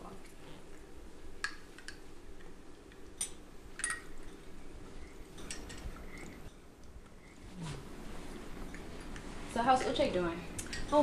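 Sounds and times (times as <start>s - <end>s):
teaspoon and teacups clinking: 3.2s - 4.4s.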